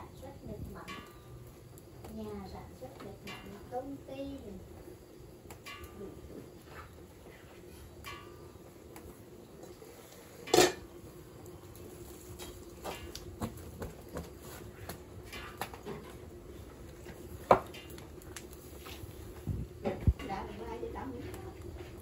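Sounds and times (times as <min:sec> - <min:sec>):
metal pot clinking on grate: 0:03.2 - 0:03.7, 0:05.6 - 0:06.2, 0:10.4 - 0:10.9.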